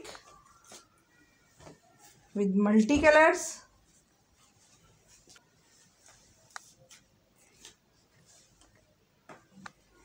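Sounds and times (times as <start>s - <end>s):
cloth rustling: 3.0s - 10.0s.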